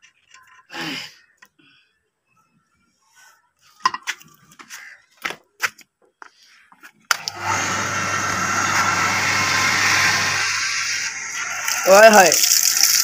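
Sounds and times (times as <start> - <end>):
electric water pump humming: 7.1 - 13.0.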